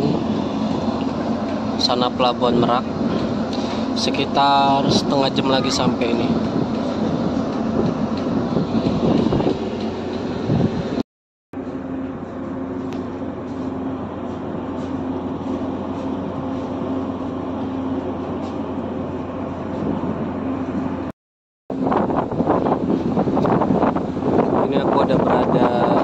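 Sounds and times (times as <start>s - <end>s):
ship engines low drone: 0.0s - 11.0s, 11.6s - 21.1s, 21.7s - 26.0s
wind on microphone: 4.7s - 11.0s, 21.7s - 26.0s.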